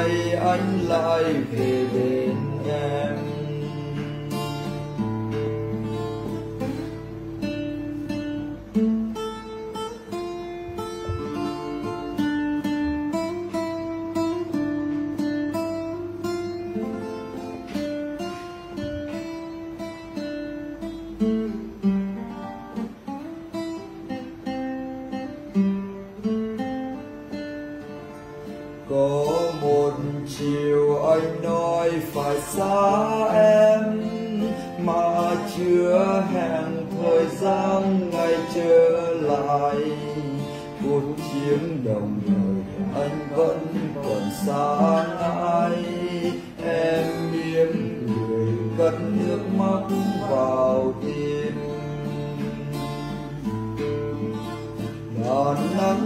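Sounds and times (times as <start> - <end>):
man singing: 0.0 - 5.4, 28.8 - 53.7, 54.9 - 56.0
acoustic guitar playing: 0.0 - 56.0.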